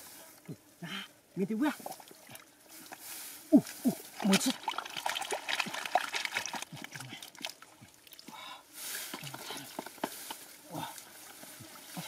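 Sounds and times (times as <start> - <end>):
small water splashes: 1.8 - 8.4
hands squelching in wet mud: 1.8 - 12.0.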